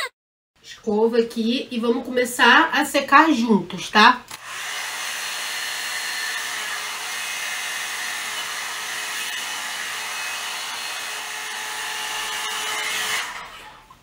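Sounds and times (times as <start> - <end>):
hot-air dryer brush blowing: 4.4 - 13.8.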